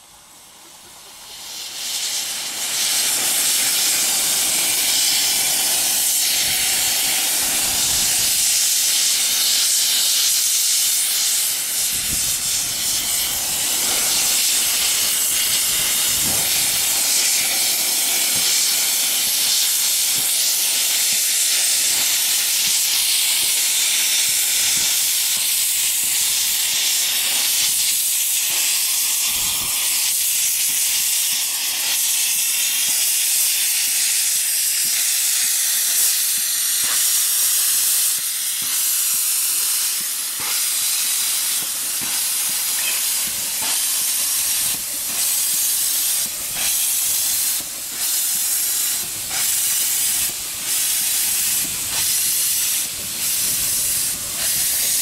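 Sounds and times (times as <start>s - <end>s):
steam venting hiss: 0.0s - 55.0s.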